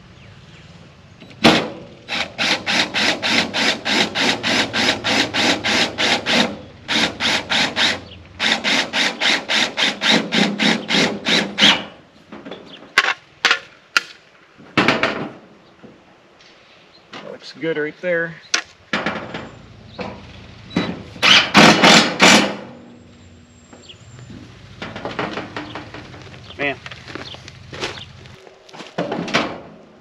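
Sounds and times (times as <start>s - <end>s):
power driver rattling screw: 2.1s - 11.9s
sharp knocks on metal panel: 14.8s - 15.4s, 18.6s - 22.7s, 29.0s - 29.7s.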